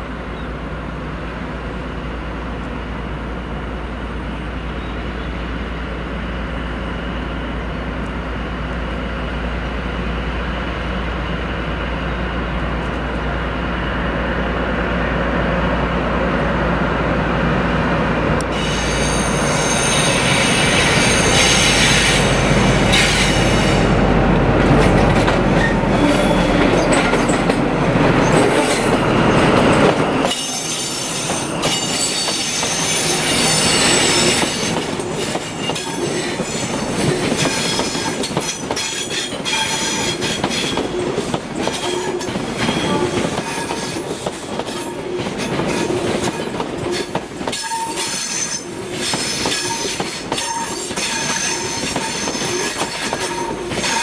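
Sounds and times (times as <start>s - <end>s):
diesel train engine rumble: 0.0s - 54.0s
wheel squeal: 18.6s - 22.2s.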